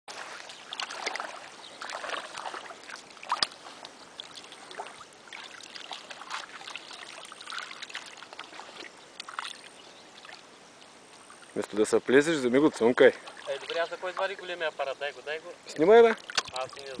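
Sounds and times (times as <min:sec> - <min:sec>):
water splashing and sloshing: 0:00.1 - 0:17.0
sharp smack on water: 0:16.3 - 0:16.6.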